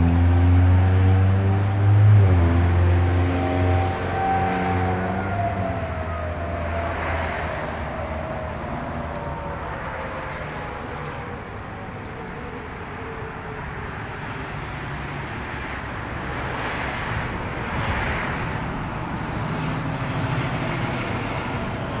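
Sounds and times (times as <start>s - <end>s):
vehicle passing: 0.0s - 13.2s
road traffic noise: 0.0s - 22.0s
faint siren winding down: 0.4s - 14.0s.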